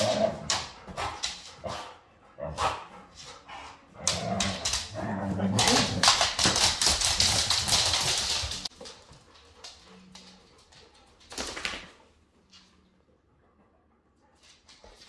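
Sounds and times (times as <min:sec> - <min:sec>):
dog claws scrabbling on wooden floor: 0:04.0 - 0:12.0.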